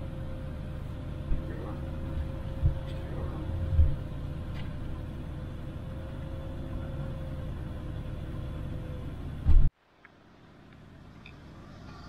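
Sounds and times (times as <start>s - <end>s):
engine and road rumble: 0.0s - 12.0s
low thump: 9.5s - 9.7s.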